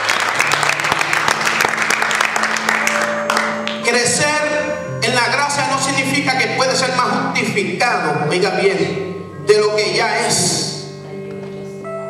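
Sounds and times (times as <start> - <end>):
congregation applauding: 0.0 - 4.2.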